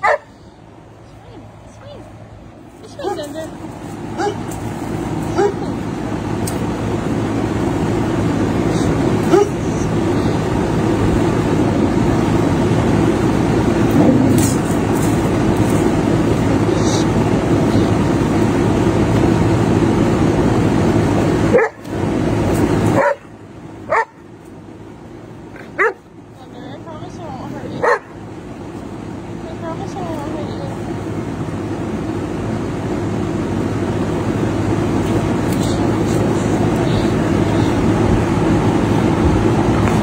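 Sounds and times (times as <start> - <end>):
dog barking sharply: 0.0 - 0.4, 4.2 - 4.5, 5.3 - 5.7, 9.3 - 9.6, 21.5 - 21.8, 23.0 - 23.3, 23.9 - 24.2, 25.7 - 26.0, 27.8 - 28.2
dog growling low: 13.9 - 14.6.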